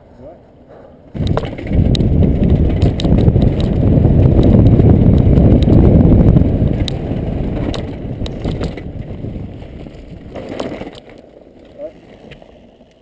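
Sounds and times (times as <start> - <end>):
wind on camera: 1.1 - 11.1
stones clicking and knocking: 1.2 - 3.8
bike rattling: 1.2 - 13.0
tyres rumbling on rocky trail: 1.2 - 13.0.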